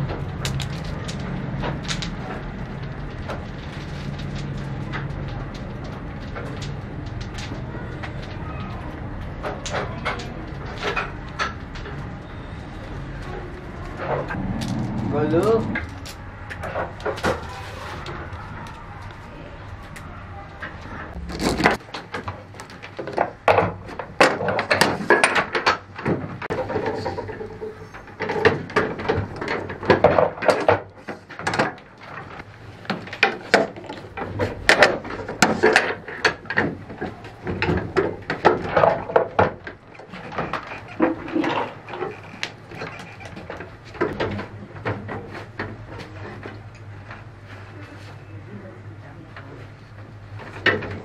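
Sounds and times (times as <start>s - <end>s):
steady low hum: 13.6s - 17.1s.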